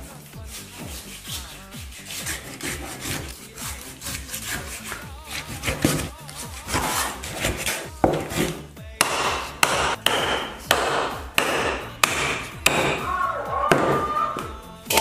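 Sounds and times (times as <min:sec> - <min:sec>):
cleaver chopping on wooden block: 0:04.1 - 0:13.0.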